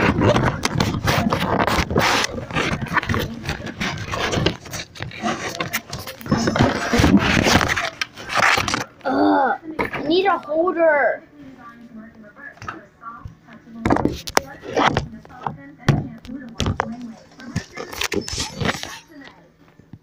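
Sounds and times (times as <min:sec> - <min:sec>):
phone handling scraping and rubbing: 0:00.0 - 0:08.9, 0:16.7 - 0:19.2.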